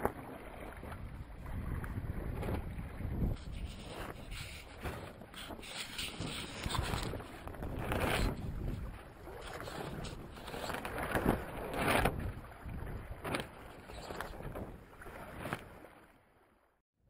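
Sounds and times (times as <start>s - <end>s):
sea water rushing past boat: 0.0s - 16.6s.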